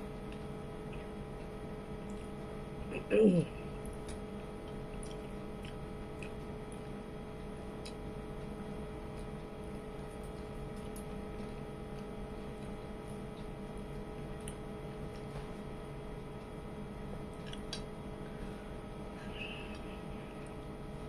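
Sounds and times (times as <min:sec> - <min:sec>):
steady electrical hum: 0:00.0 - 0:21.0
chewing: 0:03.8 - 0:06.8.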